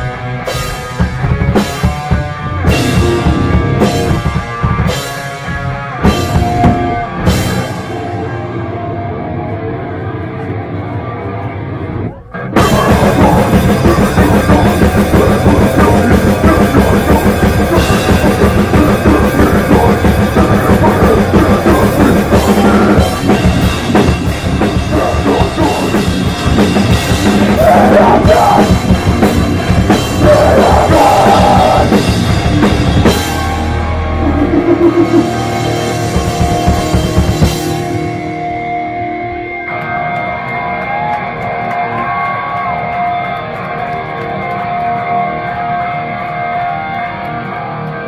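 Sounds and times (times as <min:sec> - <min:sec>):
drum kit and cymbals: 0:00.0 - 0:08.0, 0:12.6 - 0:38.6
punk band playing live: 0:00.0 - 0:48.0.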